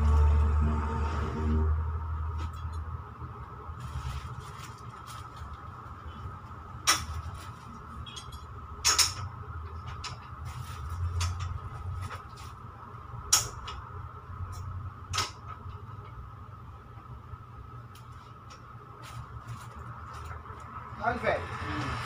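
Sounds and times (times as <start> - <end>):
plastic packs rustling: 3.8 - 6.1, 7.0 - 7.9, 19.0 - 20.7.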